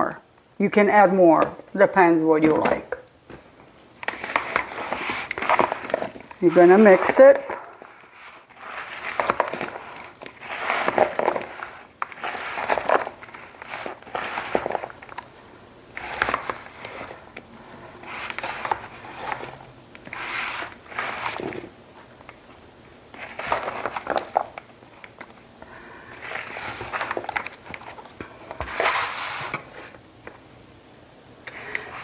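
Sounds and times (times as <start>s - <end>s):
spatula stirring food in bowl: 4.0s - 17.4s.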